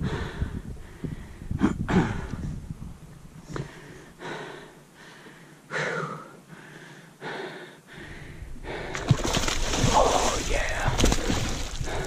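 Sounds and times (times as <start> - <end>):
person breathing hard: 0.0 - 2.5, 3.5 - 9.2, 11.8 - 12.0.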